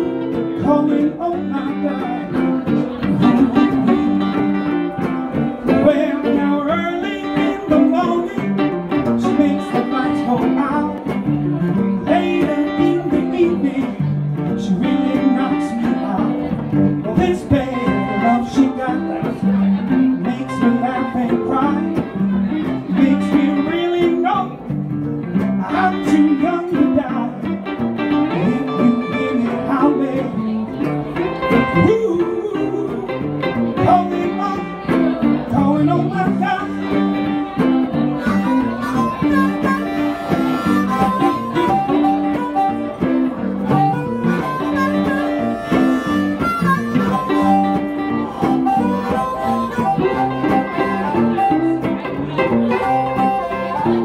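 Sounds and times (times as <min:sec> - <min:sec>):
electric guitars: 0:00.0 - 0:54.0
amplified harmonica: 0:33.7 - 0:54.0.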